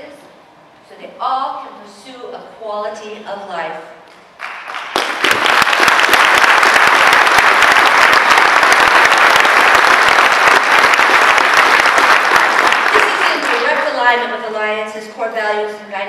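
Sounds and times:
audience applauding: 0:04.4 - 0:13.9.

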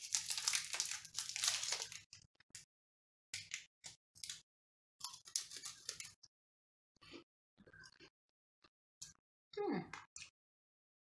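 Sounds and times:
plastic wrapper crinkling: 0:00.0 - 0:02.1.

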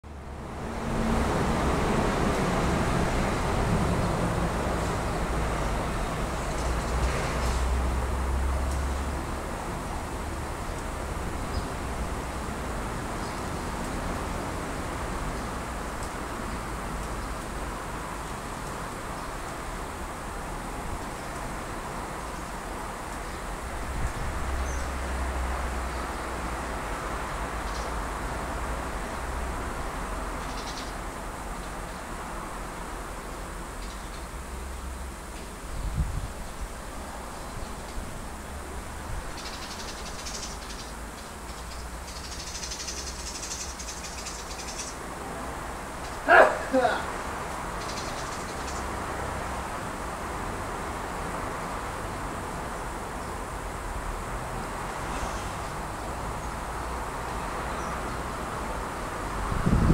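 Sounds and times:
hiss: 0:55.1 - 0:55.6.

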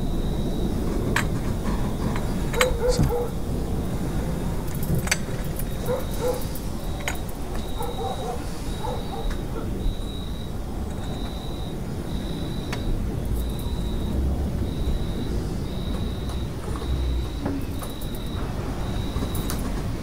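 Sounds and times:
steady low rumble: 0:00.0 - 0:20.0
distant dogs barking: 0:00.7 - 0:20.0
glasses clinking: 0:02.0 - 0:03.4.

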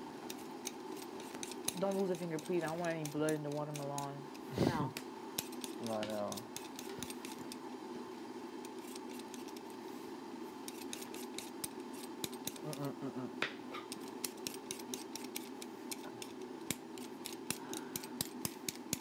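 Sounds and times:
steady background hum: 0:00.0 - 0:19.0.

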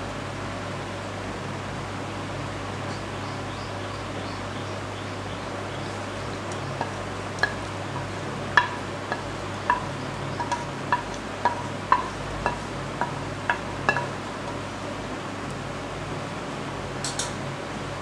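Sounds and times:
cooktop fan humming: 0:00.0 - 0:18.0
wooden spoon scraping iron pan: 0:06.8 - 0:14.2.

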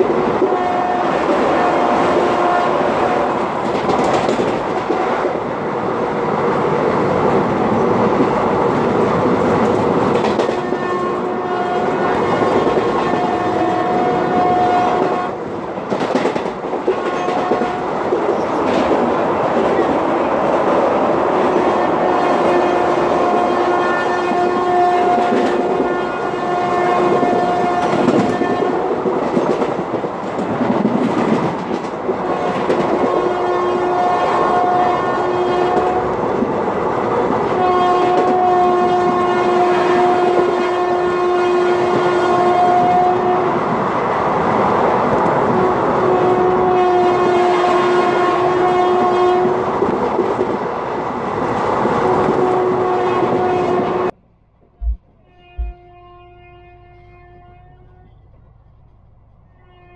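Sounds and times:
train rumble and wheel clatter: 0:00.0 - 0:54.2
train horn blasts: 0:00.3 - 0:03.3, 0:10.4 - 0:15.4, 0:17.0 - 0:18.0, 0:21.6 - 0:29.0, 0:33.1 - 0:36.2, 0:37.5 - 0:43.6, 0:45.5 - 0:49.6, 0:52.0 - 0:54.1, 0:55.1 - 0:58.2, 0:59.5 - 0:59.9.

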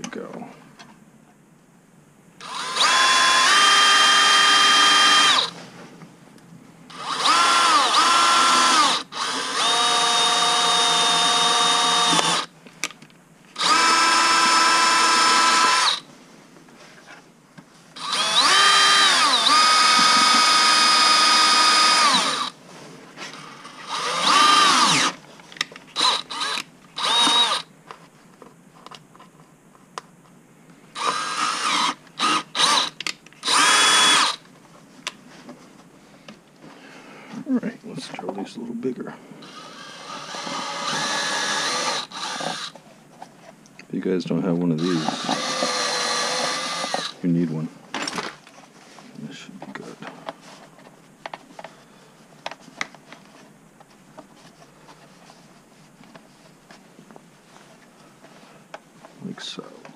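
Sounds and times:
cordless drill whining: 0:02.4 - 0:05.6, 0:06.9 - 0:12.5, 0:13.6 - 0:16.1, 0:18.0 - 0:22.6, 0:23.3 - 0:25.2, 0:25.9 - 0:27.7, 0:31.0 - 0:34.4, 0:39.4 - 0:42.8, 0:44.8 - 0:47.2.

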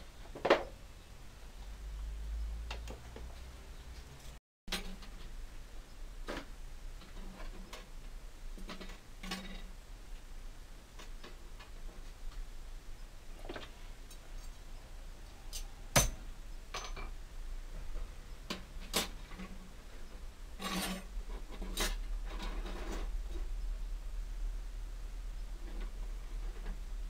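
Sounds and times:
metal clinks and scrapes: 0:20.6 - 0:23.2.

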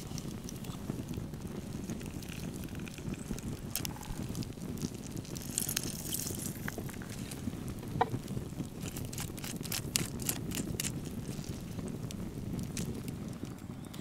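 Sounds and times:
wood fire crackling and popping: 0:00.0 - 0:14.0
lime squished and dripping: 0:05.2 - 0:06.9.

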